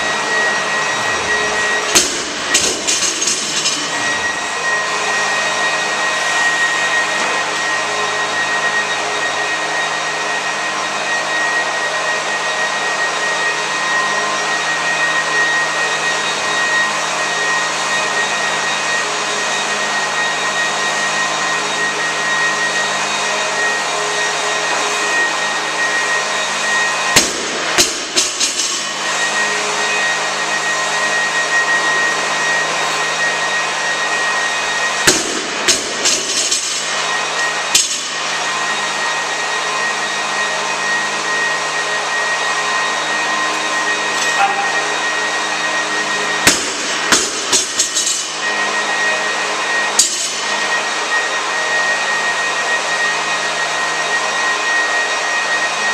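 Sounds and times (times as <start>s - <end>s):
large fan rushing: 0.0s - 55.9s.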